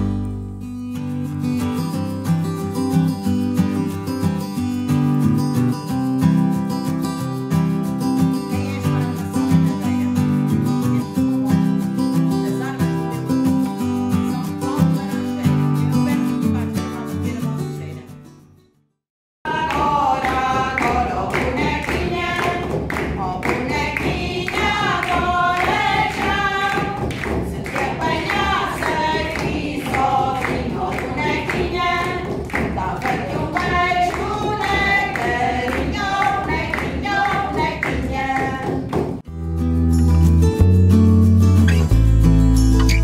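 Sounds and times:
frame drums beating: 0:19.5 - 0:39.2
women singing together: 0:19.5 - 0:39.2.

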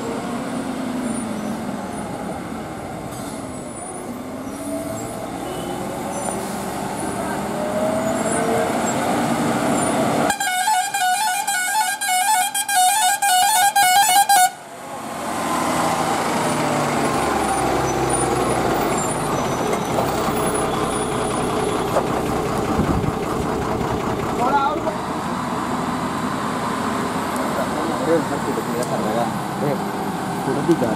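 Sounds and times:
diesel truck engine passing: 0:00.0 - 0:11.0, 0:14.6 - 0:30.9
truck musical horn: 0:10.2 - 0:14.7.

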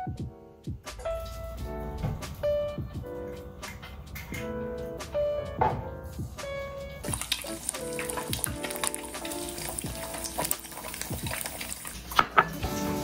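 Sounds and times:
background music: 0:00.0 - 0:13.0
egg sizzling in a pan: 0:07.0 - 0:13.0.

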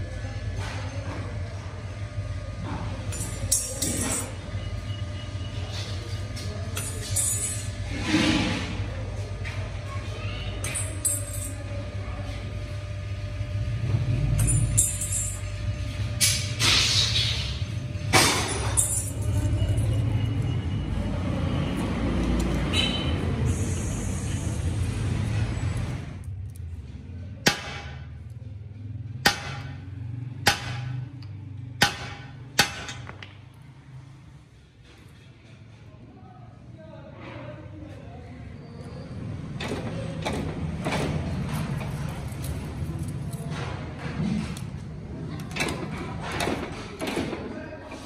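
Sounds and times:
metal clinks and knocks: 0:14.4 - 0:15.5, 0:18.4 - 0:20.0.

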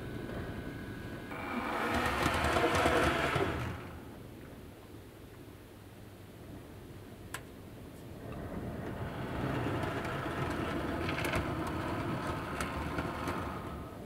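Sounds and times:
model train motor humming: 0:01.2 - 0:04.1, 0:08.8 - 0:14.0
wheels clicking over rail joints: 0:01.3 - 0:04.1, 0:08.2 - 0:14.0.

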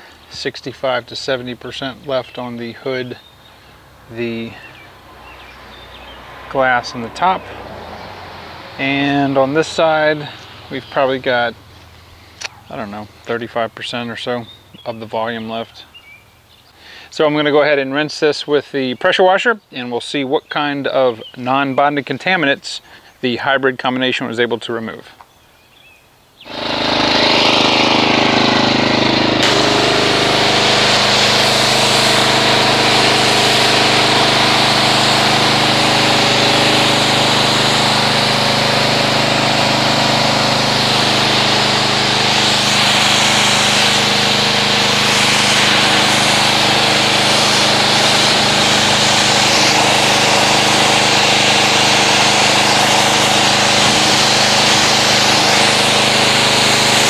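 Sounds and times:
pressure washer motor humming: 0:00.0 - 0:14.9, 0:26.5 - 0:57.0
water jet hissing: 0:03.4 - 0:12.4, 0:26.5 - 0:57.0.

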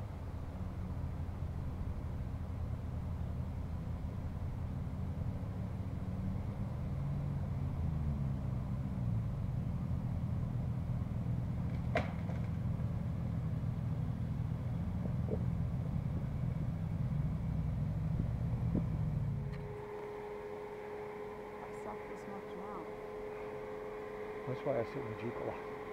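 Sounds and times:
vehicle engine idling: 0:00.0 - 0:25.9.

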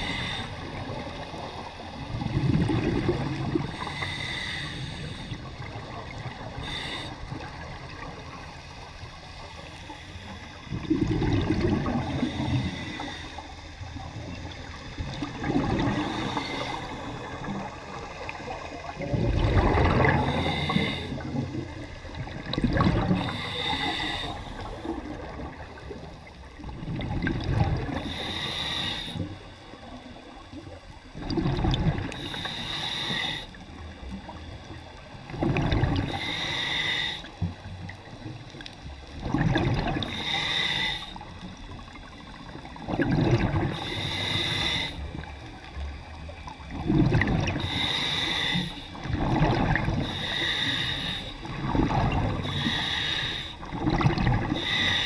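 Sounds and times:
regulator hissing inhale: 0:00.0 - 0:01.9, 0:03.5 - 0:10.8, 0:11.9 - 0:14.1, 0:15.7 - 0:19.0, 0:19.9 - 0:22.3, 0:23.1 - 0:26.7, 0:27.8 - 0:30.5, 0:32.0 - 0:35.2, 0:35.9 - 0:38.0, 0:39.9 - 0:42.5, 0:43.6 - 0:46.3, 0:47.4 - 0:49.2, 0:49.8 - 0:53.8, 0:54.4 - 0:55.0
exhaled air bubbling underwater: 0:00.0 - 0:55.0.

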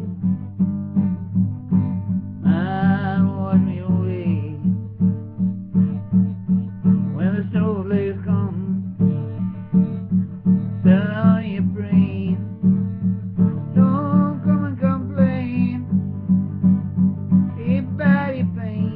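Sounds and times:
acoustic guitar strumming: 0:00.0 - 0:18.9
man singing: 0:02.4 - 0:04.8, 0:07.1 - 0:09.0, 0:10.8 - 0:12.6, 0:13.7 - 0:16.0, 0:17.6 - 0:18.9.

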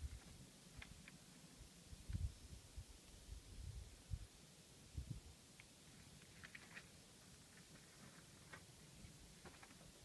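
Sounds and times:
faint outdoor background hiss: 0:00.0 - 0:10.0.

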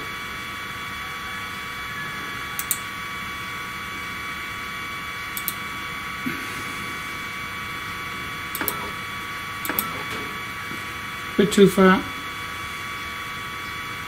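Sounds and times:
stepper motor whine and hiss: 0:00.0 - 0:14.0
computer mouse double clicks: 0:02.6 - 0:02.8, 0:05.4 - 0:05.6.

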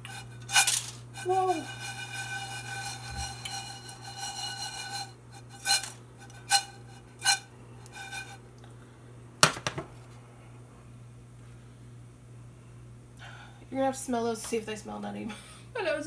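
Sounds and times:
steady high whine: 0:00.0 - 0:09.4
almonds swishing in a skillet: 0:00.3 - 0:06.0.

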